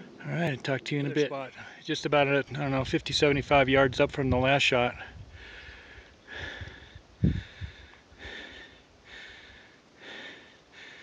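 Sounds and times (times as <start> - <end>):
person breathing hard: 5.1 - 11.0.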